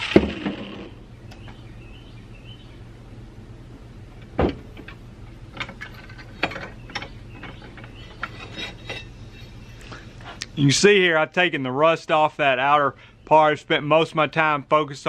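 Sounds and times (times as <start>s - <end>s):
metal clanks from vise: 5.6s - 9.1s.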